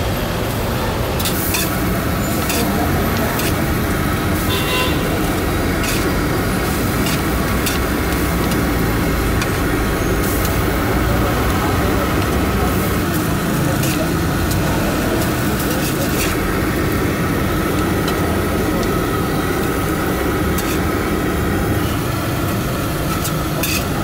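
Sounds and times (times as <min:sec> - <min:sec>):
street traffic rumble: 0:00.0 - 0:24.0
spatulas tapping on griddle: 0:01.2 - 0:03.7, 0:05.2 - 0:10.6, 0:20.5 - 0:20.9, 0:22.4 - 0:24.0.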